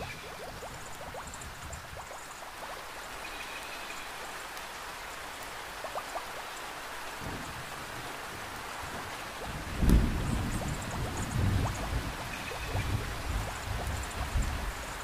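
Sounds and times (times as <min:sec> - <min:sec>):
rain on foliage: 0:00.0 - 0:15.0
low rumble of thunder: 0:07.2 - 0:15.0.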